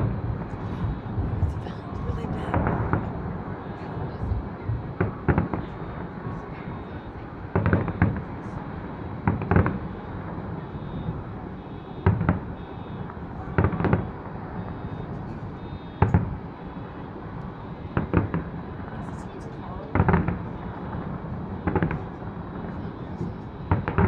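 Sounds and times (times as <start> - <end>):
low city rumble: 0.0 - 24.0.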